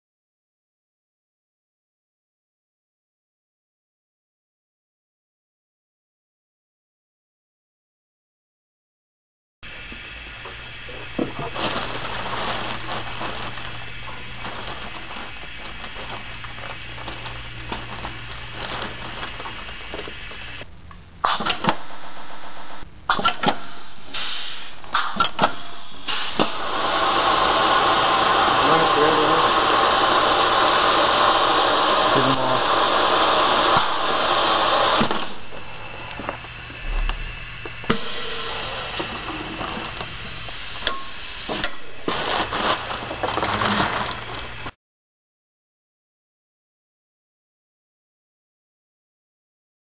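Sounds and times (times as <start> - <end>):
steady low hum: 9.6 - 44.7
plastic bag crinkling: 10.9 - 20.6, 42.0 - 44.7
vacuum pump rushing: 26.1 - 44.7
brief low hum: 36.7 - 40.5.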